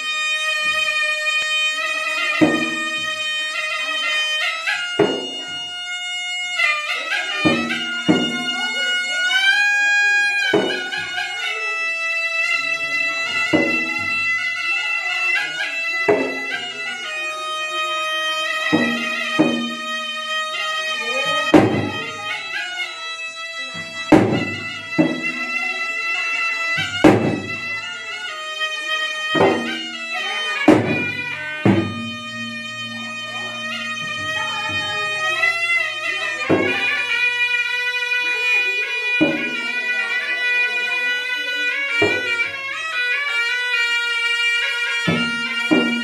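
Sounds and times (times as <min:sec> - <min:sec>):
shawm reedy melody: 0:00.0 - 0:46.0
drum strikes: 0:02.4 - 0:03.6, 0:04.9 - 0:05.8, 0:07.4 - 0:08.8, 0:10.5 - 0:11.2, 0:13.2 - 0:14.4, 0:16.1 - 0:22.5, 0:23.7 - 0:26.1, 0:26.8 - 0:28.5, 0:29.1 - 0:37.2, 0:39.2 - 0:39.7, 0:45.0 - 0:46.0.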